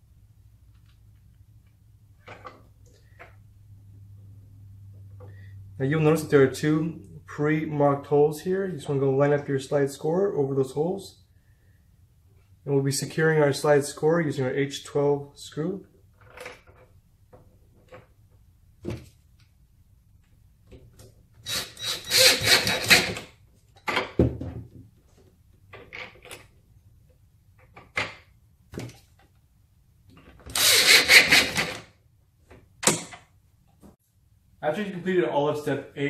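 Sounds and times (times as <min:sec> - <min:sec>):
cordless drill driving screws: 0:21.4 - 0:23.2, 0:30.5 - 0:31.9.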